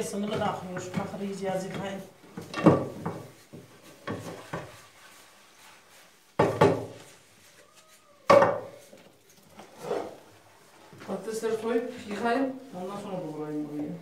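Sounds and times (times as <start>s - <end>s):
dishes clattering in a sink: 2.4s - 3.3s, 6.4s - 7.0s.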